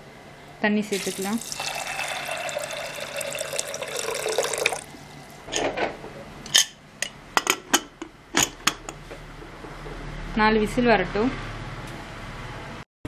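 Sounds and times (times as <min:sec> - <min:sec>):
water pouring into a pot: 0:00.9 - 0:05.4.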